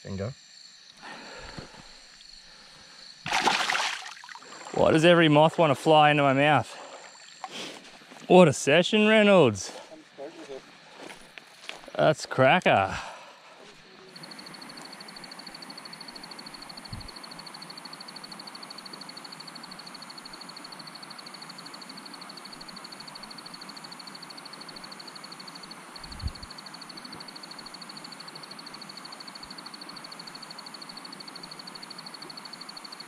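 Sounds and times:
faint insect chirping: 0.0 - 33.0
insects trilling: 0.0 - 33.0.

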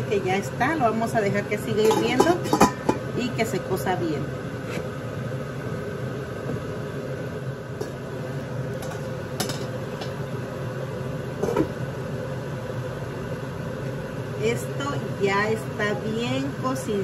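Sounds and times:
steady hum: 0.0 - 17.0
metal pot lid clinks: 1.8 - 3.0.

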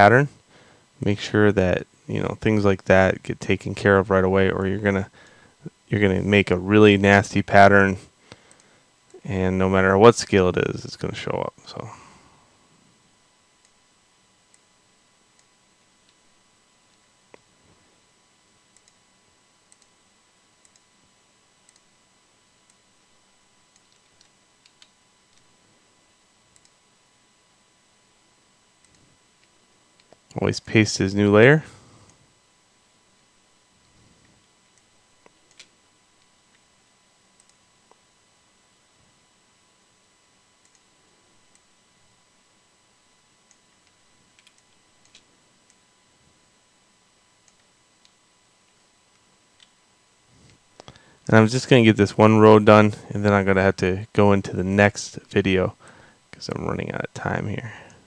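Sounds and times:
computer mouse and keyboard clicks: 43.5 - 45.3.

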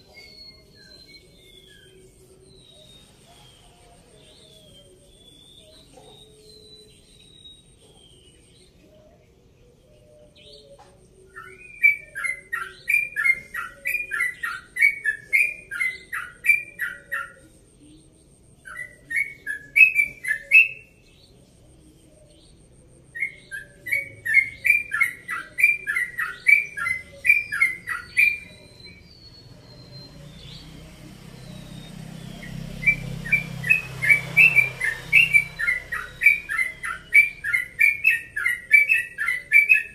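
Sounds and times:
bulbul song of rapid chirps: 0.0 - 39.9
other birds calling: 0.0 - 39.9.

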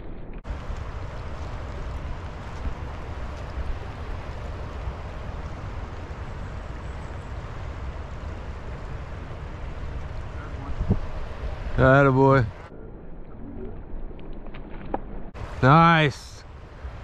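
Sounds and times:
wind rumble on microphone: 0.0 - 15.6
creek water running over riffle: 0.4 - 12.5.

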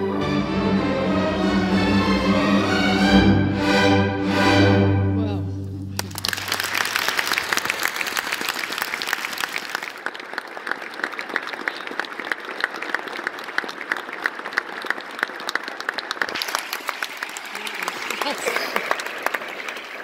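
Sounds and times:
audience applauding: 5.9 - 20.0.

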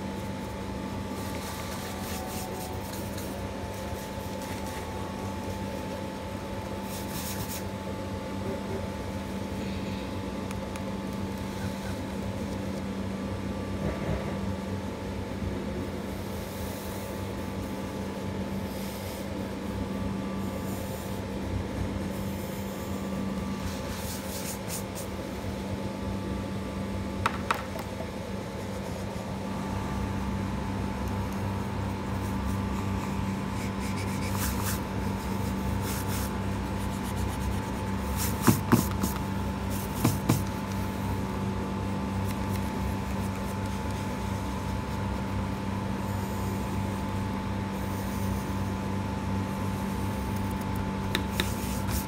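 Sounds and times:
scratchy strokes: 1.1 - 5.0, 22.0 - 25.1, 31.9 - 40.6.

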